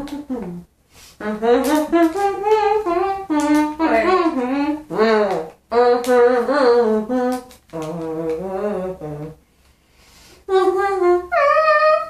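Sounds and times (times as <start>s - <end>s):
woman humming: 1.2s - 9.4s.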